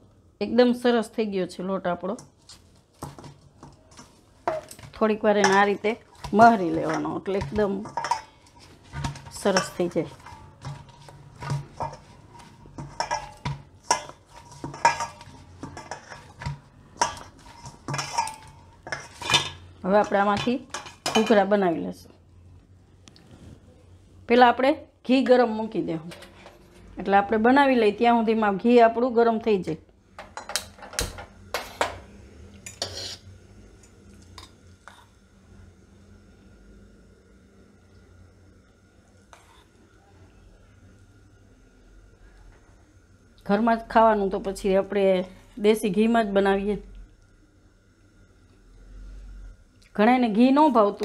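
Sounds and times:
wok and metal spoon clinking: 4.4s - 21.5s.

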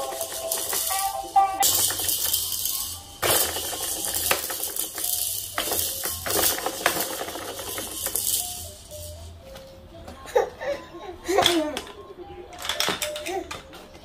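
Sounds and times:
plastic toy rollers rattling: 0.0s - 9.3s, 11.4s - 13.8s.

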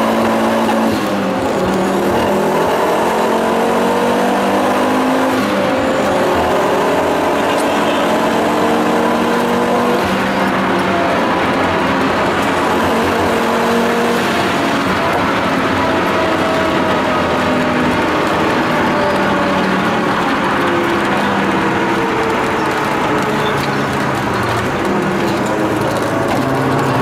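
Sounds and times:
car engine accelerating: 0.0s - 27.0s
road noise: 0.0s - 27.0s.

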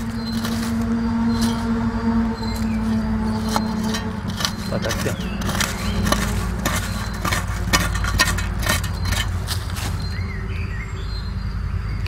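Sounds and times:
metal blade digging into soil: 0.0s - 1.8s, 2.4s - 10.2s
bird chirping: 0.0s - 12.0s.

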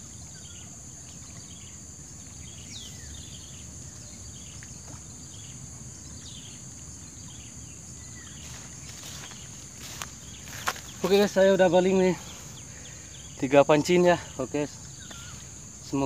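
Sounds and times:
insects buzzing: 0.0s - 16.0s
descending bird chirps: 10.4s - 15.6s.

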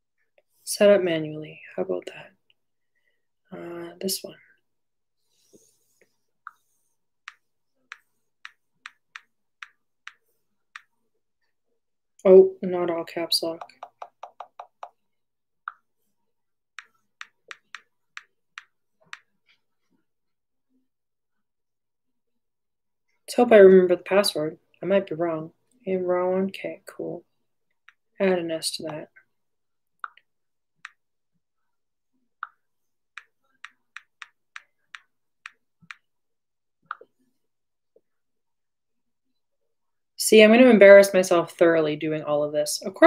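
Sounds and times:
taps on touchscreen keyboard: 13.6s - 15.0s, 16.8s - 19.3s.

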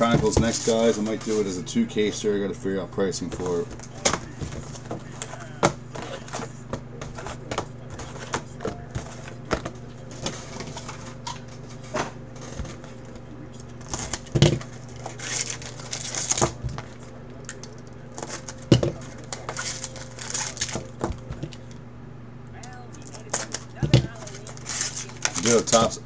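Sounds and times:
steady low hum: 0.0s - 26.0s
plastic wrap crinkling and tearing: 13.8s - 21.8s, 23.0s - 25.9s.

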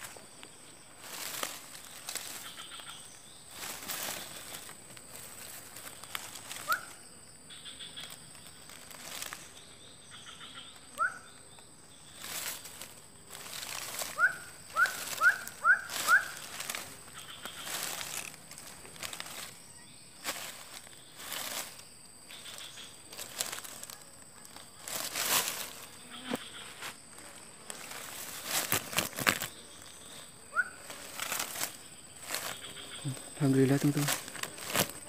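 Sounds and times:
wire trap scraping in dry leaves: 1.0s - 2.9s, 3.5s - 6.9s, 8.0s - 9.5s, 12.2s - 19.6s, 20.2s - 26.9s, 27.7s - 29.6s, 30.8s - 35.0s.

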